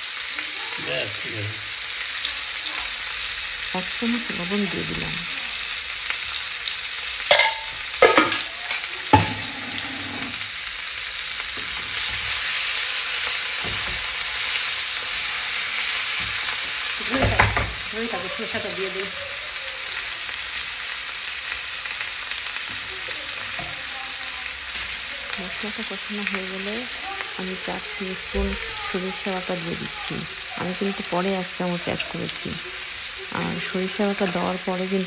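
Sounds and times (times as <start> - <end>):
vegetables sizzling in oil: 0.0 - 35.0
utensil knocking on pan: 7.3 - 8.5, 9.1 - 10.4
tongs scraping: 7.3 - 10.5.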